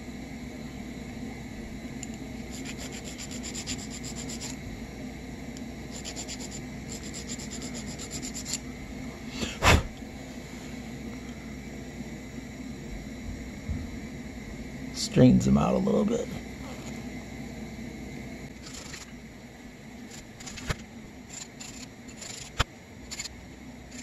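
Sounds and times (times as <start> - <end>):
hand file rasping on metal: 2.5 - 4.6, 5.9 - 8.6.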